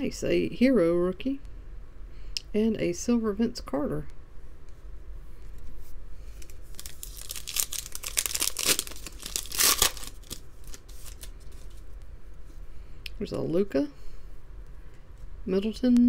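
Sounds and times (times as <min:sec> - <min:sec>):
wrapper crinkling: 0:06.3 - 0:11.9
wrapper tearing: 0:06.4 - 0:11.8.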